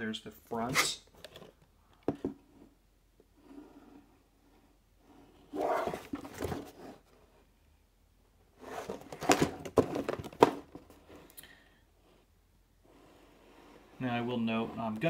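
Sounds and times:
cardboard box rubbing and scraping: 5.3s - 7.1s, 8.6s - 9.3s.

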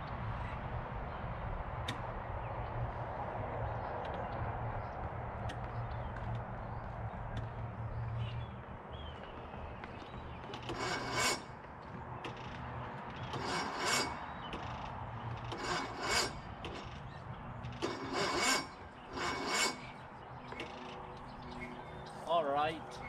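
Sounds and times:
starter motor cranking: 10.6s - 11.4s, 13.3s - 17.0s, 17.8s - 19.9s.

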